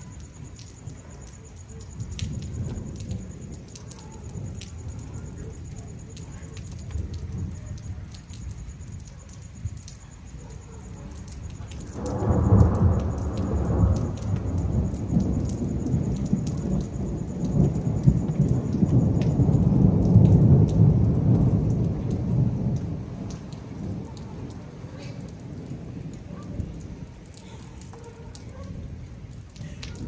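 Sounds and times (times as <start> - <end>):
steady rain: 0.0 - 30.0
thunder rumbling: 0.0 - 30.0.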